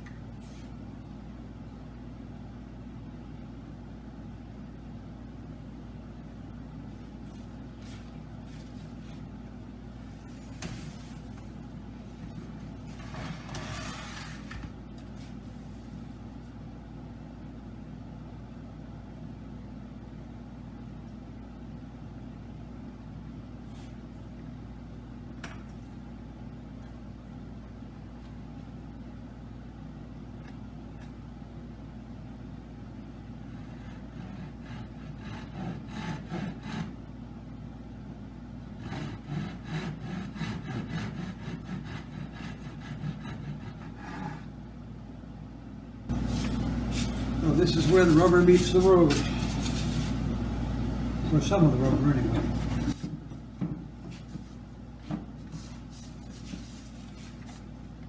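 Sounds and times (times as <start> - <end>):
hand saw cutting wood: 33.7 - 37.0, 38.8 - 44.4.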